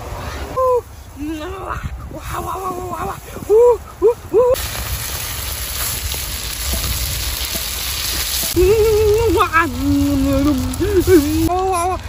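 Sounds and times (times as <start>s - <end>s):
person's wordless wavering voice: 0.6s - 4.6s, 8.6s - 12.0s
food sizzling in a wok: 4.5s - 11.6s.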